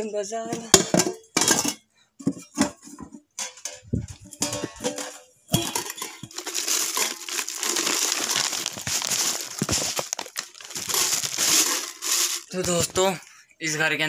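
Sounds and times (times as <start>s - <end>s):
material crinkling and rustling: 3.8s - 13.1s.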